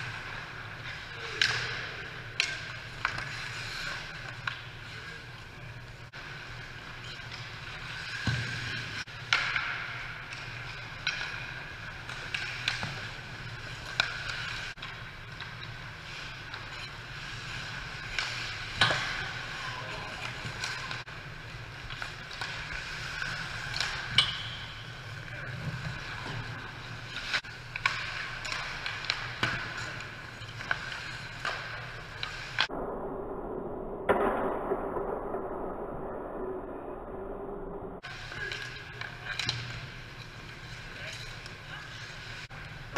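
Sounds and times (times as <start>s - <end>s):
hockey sticks and puck clacking: 0.0s - 32.7s, 38.0s - 42.9s
low rink hum: 0.0s - 42.9s
skate blades scraping ice: 0.1s - 32.6s.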